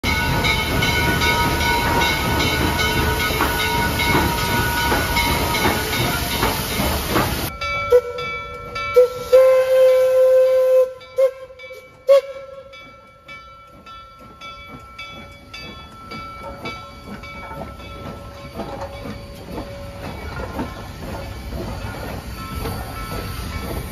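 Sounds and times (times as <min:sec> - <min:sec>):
locomotive bell ringing: 0:00.0 - 0:23.9
steam locomotive hissing: 0:00.0 - 0:23.9
steam whistle chord: 0:07.9 - 0:12.7.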